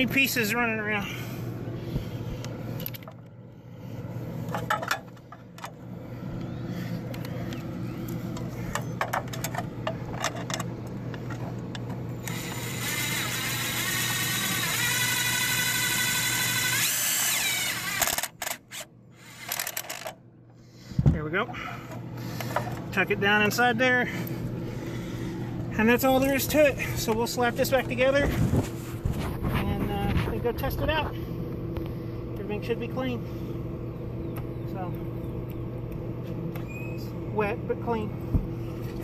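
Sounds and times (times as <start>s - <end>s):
cordless driver motor whine: 4.3s - 20.2s.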